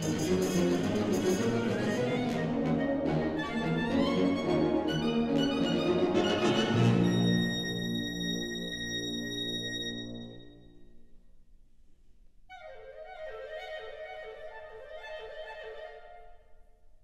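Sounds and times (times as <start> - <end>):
wind band playing chords: 0.0 - 10.4.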